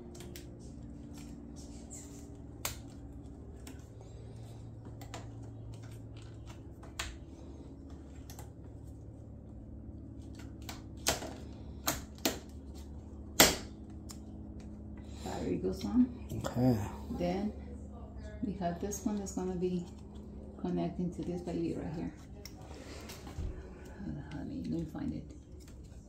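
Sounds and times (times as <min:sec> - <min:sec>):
faint low hum: 0:00.0 - 0:26.0.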